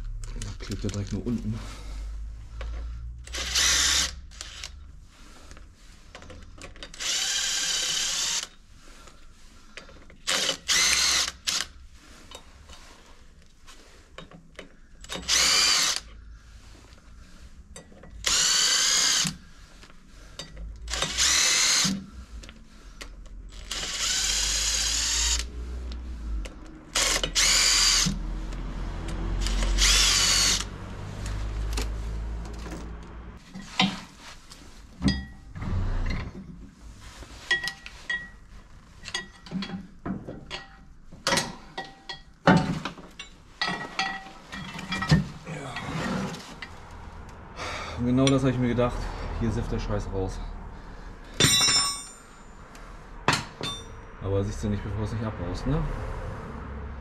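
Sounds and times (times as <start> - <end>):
power driver motor whine: 29.1 - 32.0
metal bolts clinking: 51.4 - 52.2.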